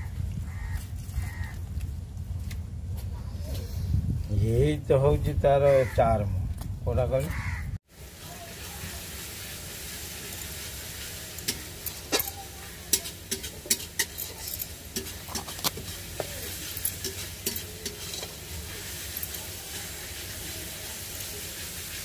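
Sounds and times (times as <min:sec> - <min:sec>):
food sizzling in a pan: 0:07.9 - 0:22.0
metal spoon scraping a pan: 0:10.2 - 0:22.0.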